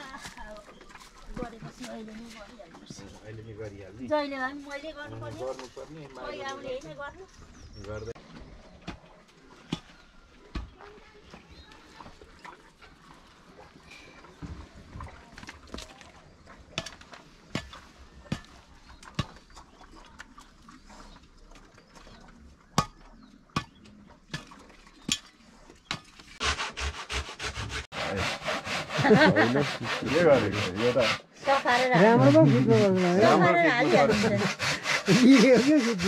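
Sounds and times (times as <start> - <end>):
handsaw cutting wooden board: 26.4 - 36.0.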